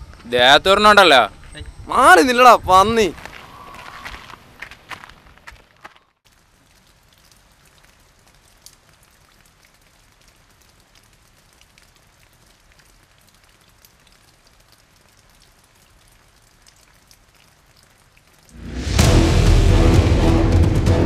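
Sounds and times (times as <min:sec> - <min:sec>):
loud music: 0:18.6 - 0:21.0.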